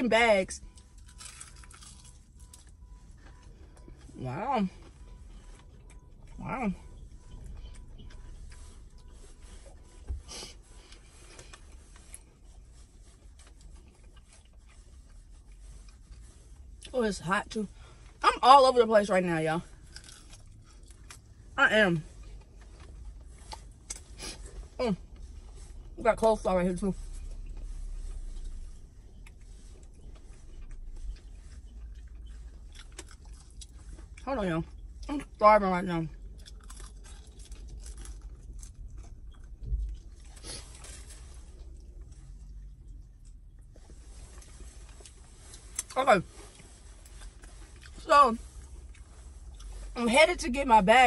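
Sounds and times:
low rumble inside car: 0:00.0 - 0:51.0
person chewing: 0:00.7 - 0:04.1, 0:04.8 - 0:16.9, 0:19.8 - 0:21.4, 0:28.2 - 0:35.1, 0:36.1 - 0:49.9.

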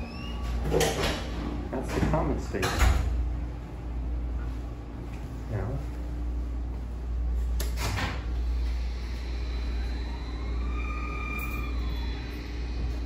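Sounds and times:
elevator motor whine: 0:00.0 - 0:02.4, 0:06.3 - 0:13.0
elevator low rumble: 0:00.0 - 0:13.0.

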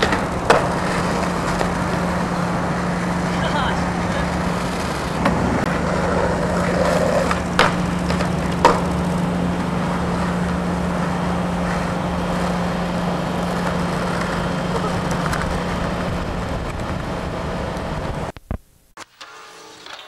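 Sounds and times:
skateboard clacking on ground: 0:00.0 - 0:03.4, 0:04.3 - 0:10.6, 0:13.3 - 0:16.1
skateboard wheels rolling on concrete: 0:00.0 - 0:20.0.

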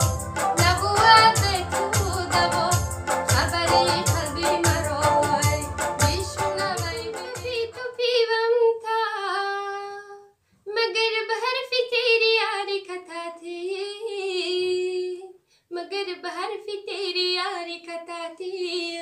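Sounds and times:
keyboard accompaniment: 0:00.0 - 0:07.9
woman singing solo: 0:00.0 - 0:08.5.

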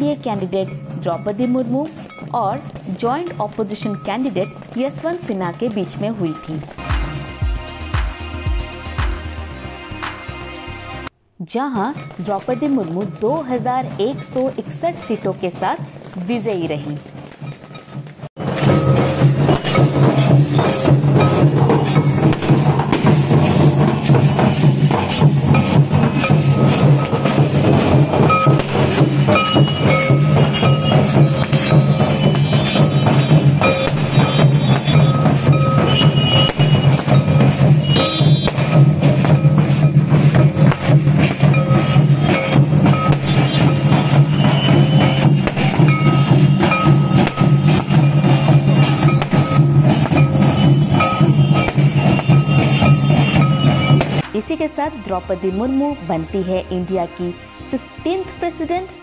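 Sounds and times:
drums beaten in fast rhythm: 0:00.0 - 0:10.3, 0:18.3 - 0:56.6
high held note: 0:18.5 - 0:54.4.

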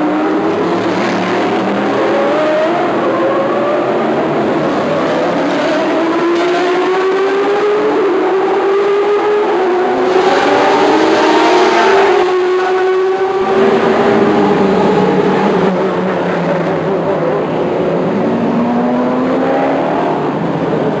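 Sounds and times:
racing car engines passing: 0:00.0 - 0:21.0.

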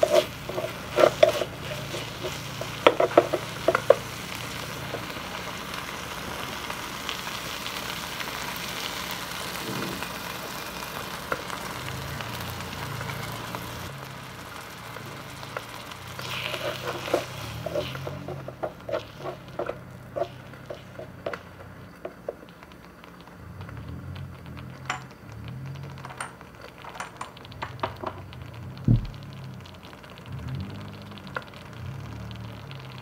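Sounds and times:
low thump: 0:28.9 - 0:29.2.

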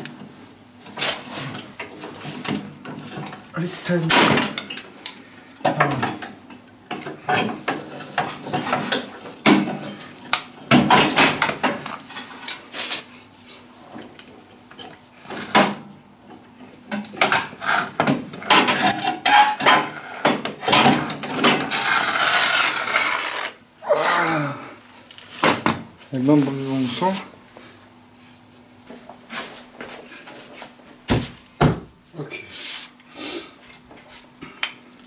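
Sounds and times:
metal parts clinking and rattling: 0:04.2 - 0:05.4, 0:20.7 - 0:23.6.

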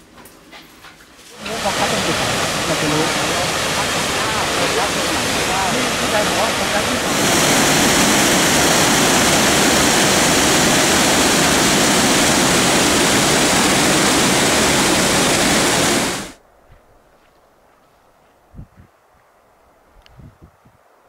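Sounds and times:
waterfall roaring: 0:01.4 - 0:16.4.

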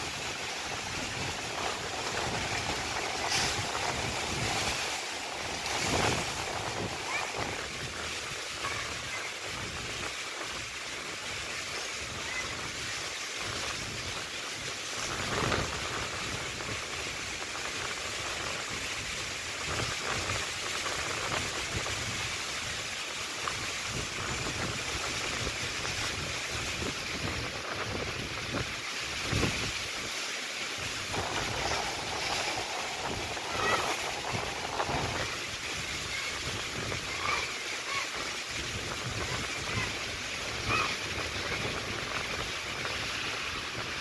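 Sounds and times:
wind rushing: 0:00.0 - 0:10.0, 0:30.8 - 0:44.0
rough surf: 0:00.0 - 0:44.0.

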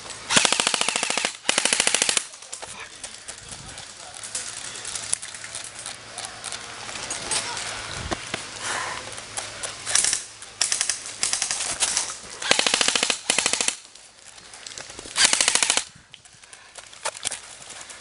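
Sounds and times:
airsoft rifle bursts: 0:00.3 - 0:02.4, 0:09.8 - 0:13.8, 0:15.2 - 0:16.0.

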